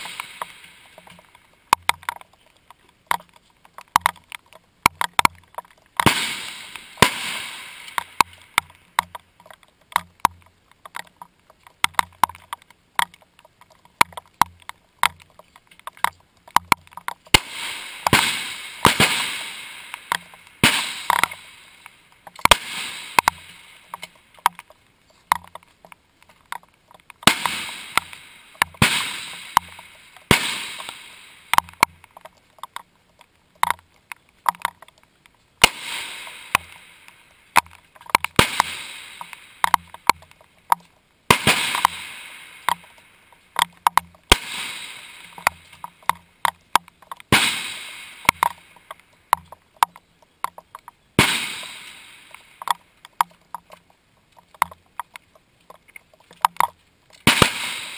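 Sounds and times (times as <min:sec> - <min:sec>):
sharp clicks: 0:00.0 - 0:57.9
rifle shots with echo: 0:06.0 - 0:08.2, 0:17.3 - 0:21.6, 0:22.5 - 0:24.0, 0:27.2 - 0:31.6, 0:35.6 - 0:36.9, 0:38.4 - 0:39.4, 0:41.3 - 0:42.7, 0:44.3 - 0:45.5, 0:47.3 - 0:48.4, 0:51.2 - 0:52.4, 0:57.2 - 0:57.9.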